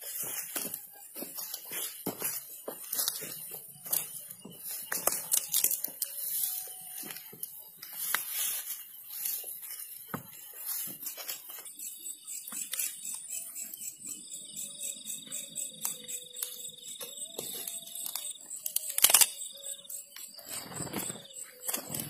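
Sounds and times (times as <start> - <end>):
dry grass crackling underfoot: 0.0 - 13.3.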